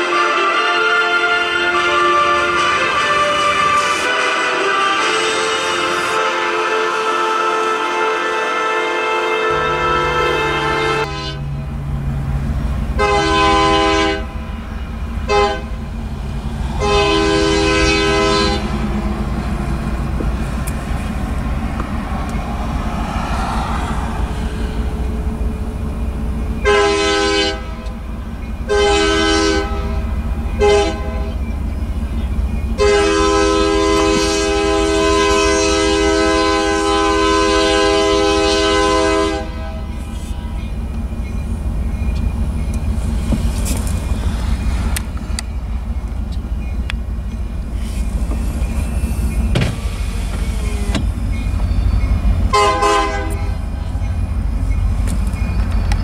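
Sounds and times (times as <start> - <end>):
locomotive air horn blasts: 0.0 - 11.6, 13.0 - 16.0, 16.7 - 20.8, 26.6 - 28.0, 28.7 - 31.4, 32.8 - 40.4, 52.5 - 53.7
train rumble: 0.0 - 56.0.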